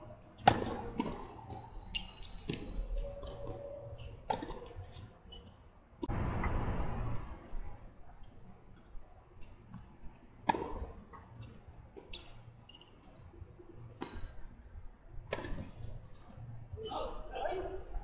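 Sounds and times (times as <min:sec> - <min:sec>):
tennis ball hits: 0:00.4 - 0:01.2, 0:10.4 - 0:10.9.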